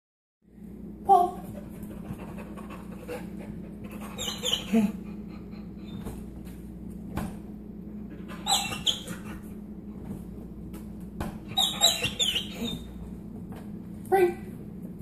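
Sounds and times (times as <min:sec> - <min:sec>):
steady low hum: 0:00.5 - 0:15.0
dog whining: 0:03.8 - 0:06.2, 0:08.2 - 0:09.5, 0:11.5 - 0:13.0.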